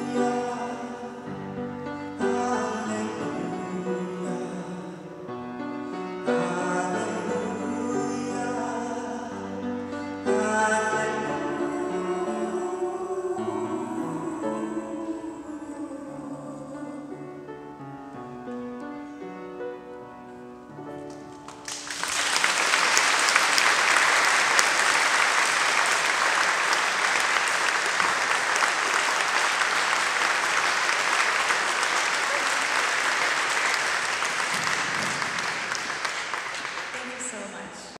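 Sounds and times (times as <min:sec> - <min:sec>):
audience applause: 0:21.3 - 0:37.3.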